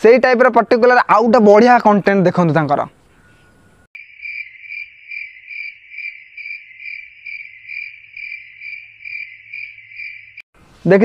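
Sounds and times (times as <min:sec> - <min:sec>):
cricket chirping: 0:04.0 - 0:10.5.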